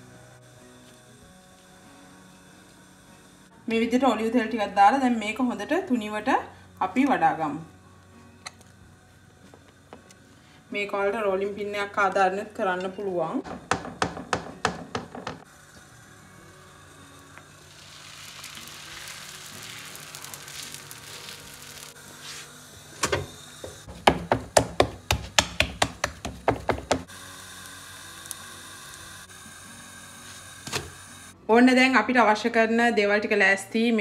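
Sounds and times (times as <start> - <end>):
quiet background music: 0.0 - 34.0
bread sizzling on griddle: 15.4 - 23.8, 26.4 - 31.2
dough pressed by hand knocks: 23.9 - 27.1.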